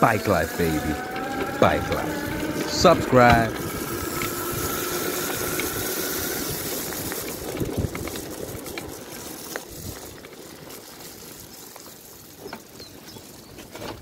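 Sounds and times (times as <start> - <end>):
tyre and wind rush: 0.0 - 10.2
bike knocks and rattles: 7.0 - 14.0.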